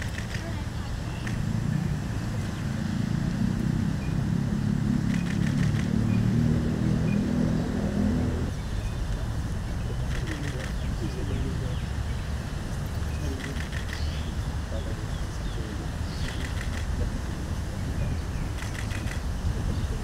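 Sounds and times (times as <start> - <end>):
faint clicks: 0.0 - 0.5, 1.2 - 1.4, 5.1 - 5.9, 13.4 - 14.1, 16.2 - 16.9, 18.6 - 19.2
motor vehicle rumbling: 0.0 - 20.0.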